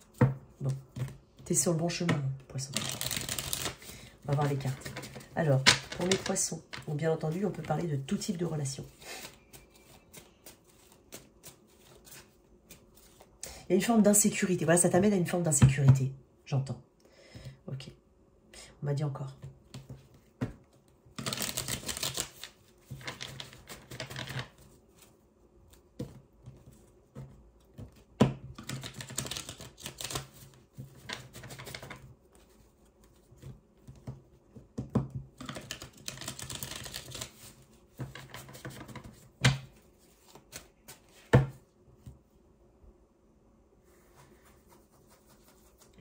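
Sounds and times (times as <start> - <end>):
cards being shuffled: 2.7 - 13.3, 20.8 - 25.1, 25.7 - 34.2, 35.4 - 42.2.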